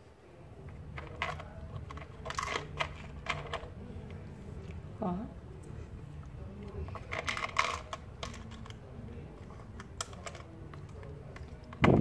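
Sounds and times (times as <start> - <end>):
plastic toy clicks and clatter: 0.9 - 3.7, 6.9 - 8.8, 9.4 - 12.0.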